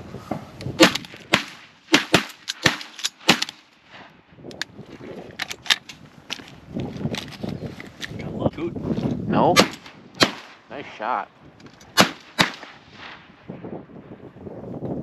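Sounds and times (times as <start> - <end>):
shotgun shots: 0.8 - 3.7, 9.5 - 10.6, 11.9 - 13.2
faint gunshot cracks: 12.0 - 12.8.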